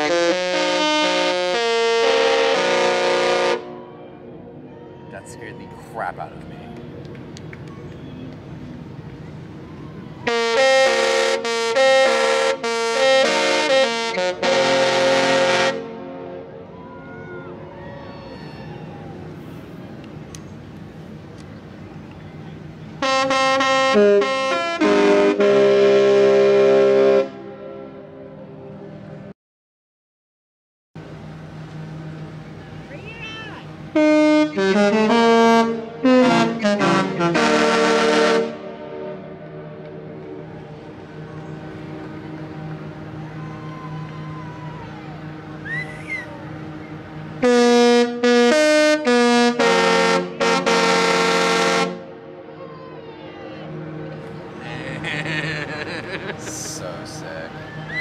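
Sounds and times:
ship's musical horn: 0:00.0 - 0:06.4, 0:09.7 - 0:19.4, 0:23.0 - 0:29.3, 0:31.0 - 0:55.0.

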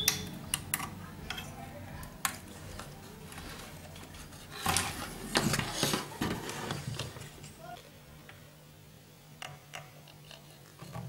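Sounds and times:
circuit board clicks and clinks: 0:00.0 - 0:00.9.

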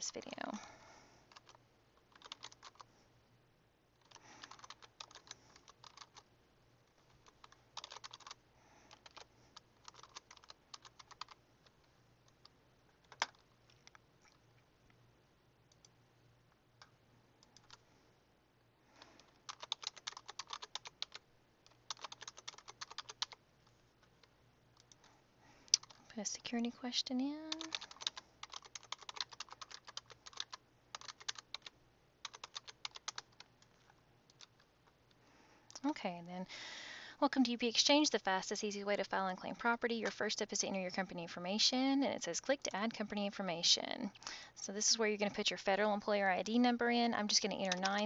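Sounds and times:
typing on computer keyboard: 0:01.3 - 0:02.9, 0:04.0 - 0:06.2, 0:07.0 - 0:14.0, 0:16.8 - 0:17.8, 0:19.0 - 0:23.4, 0:25.8 - 0:26.0, 0:27.5 - 0:34.7, 0:47.3 - 0:48.0.

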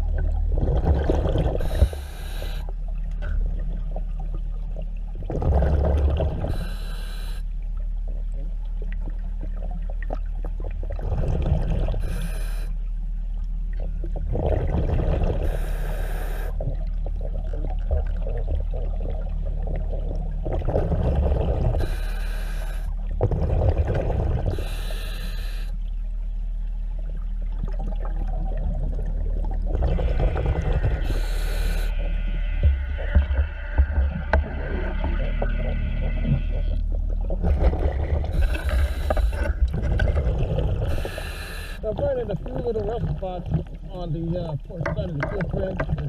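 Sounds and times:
steady low hum: 0:00.0 - 0:46.0
regulator hissing inhalation: 0:01.6 - 0:02.7, 0:06.5 - 0:07.4, 0:12.0 - 0:12.7, 0:15.5 - 0:16.6, 0:21.8 - 0:22.9, 0:24.5 - 0:25.7, 0:31.0 - 0:32.0, 0:38.4 - 0:39.5, 0:40.9 - 0:41.8
bubbling exhalations: 0:37.4 - 0:43.3.

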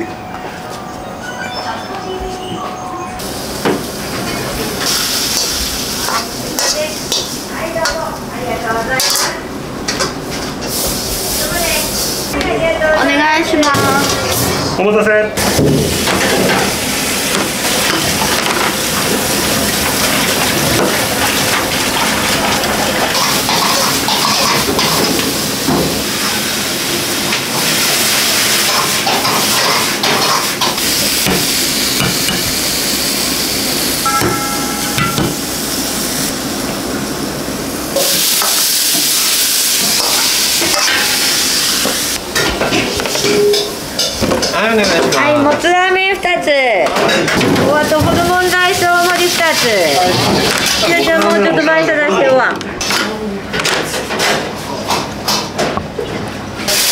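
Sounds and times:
food sizzling on a pan: 0:03.2 - 0:07.8, 0:37.9 - 0:42.2
metal plates and utensils clattering: 0:17.3 - 0:25.8, 0:39.8 - 0:41.2, 0:42.3 - 0:45.3, 0:49.5 - 0:51.5.

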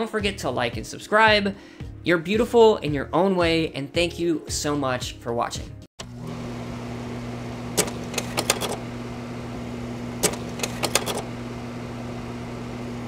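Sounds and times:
sharp clicks: 0:07.8 - 0:08.8, 0:10.2 - 0:11.3.

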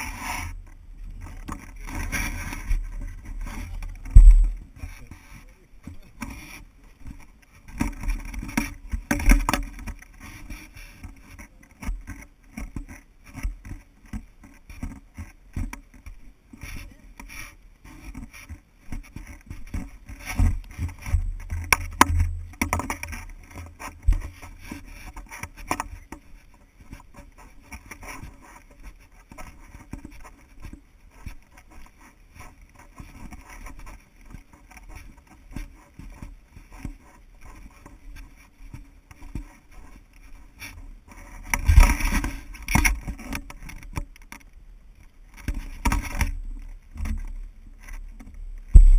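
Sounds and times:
footsteps on dirt trail: 0:00.0 - 0:11.0.

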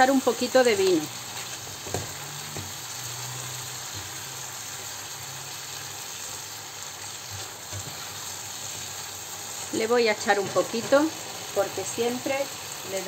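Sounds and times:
food sizzling in a frying pan: 0:00.0 - 0:13.0.

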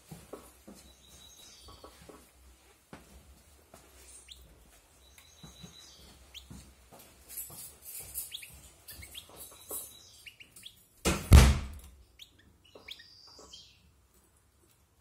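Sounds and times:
loud thump: 0:11.1 - 0:11.9.

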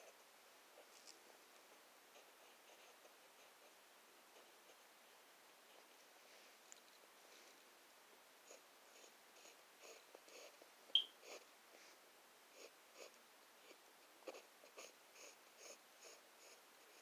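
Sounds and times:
pen scratching on paper: 0:02.1 - 0:04.8.

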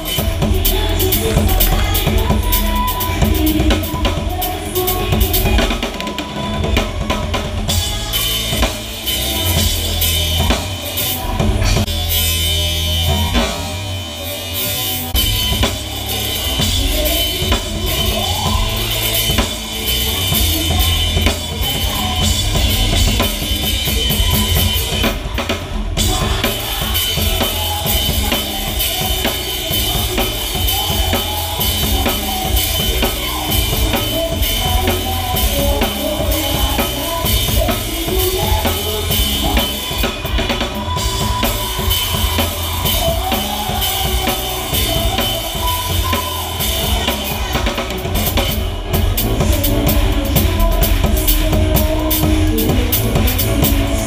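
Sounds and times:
live band music: 0:00.0 - 0:54.0.

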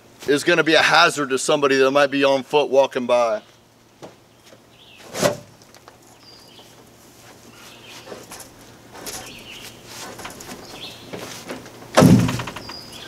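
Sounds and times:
faint scraping and shuffling: 0:03.4 - 0:11.8
sharp knock: 0:12.0 - 0:12.7.

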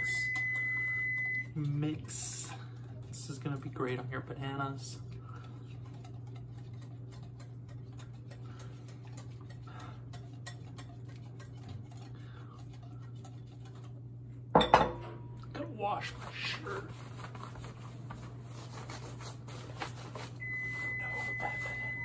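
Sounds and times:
whisk clicking against bowl: 0:05.3 - 0:13.9.

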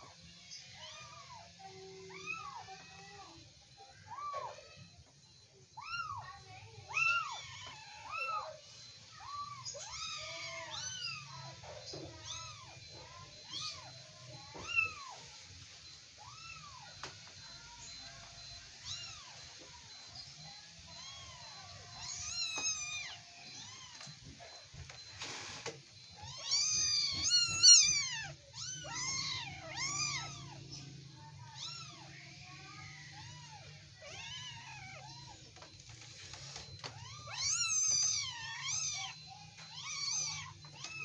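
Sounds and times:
kittens mewing: 0:26.0 - 0:41.0.

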